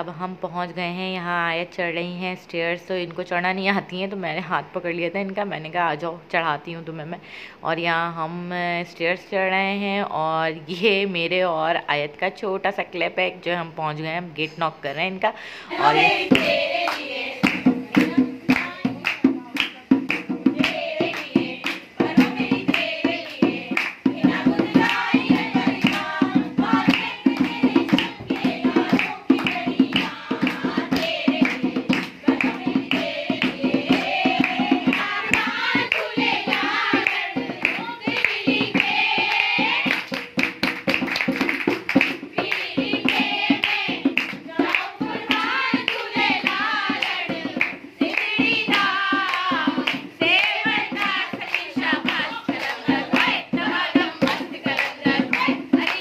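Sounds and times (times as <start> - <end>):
voices singing: 15.6 - 40.1, 42.2 - 56.0
hand drum rhythm: 15.7 - 56.0.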